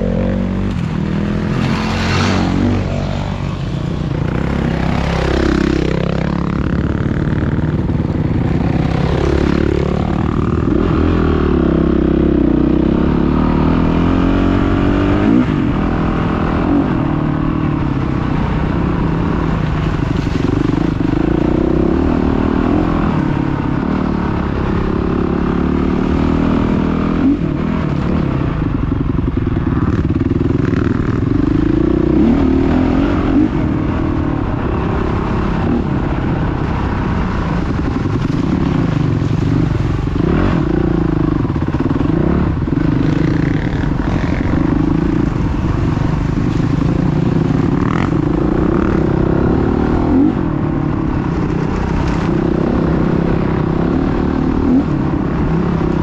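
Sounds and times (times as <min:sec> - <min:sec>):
dirt bike engine revving: 0:00.0 - 0:07.8, 0:37.9 - 0:50.6.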